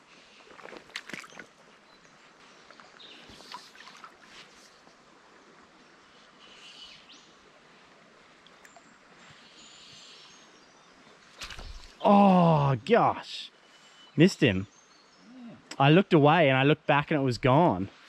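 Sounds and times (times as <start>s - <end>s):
faint water trickle: 0.0s - 16.6s
faint bird calls: 6.0s - 7.3s, 9.3s - 10.8s, 15.1s - 15.7s.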